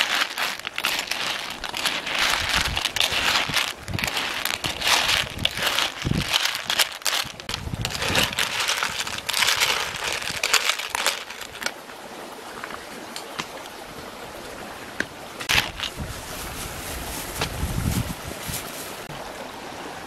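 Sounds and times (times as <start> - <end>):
spoon stirring clattering shells: 0.0 - 11.7.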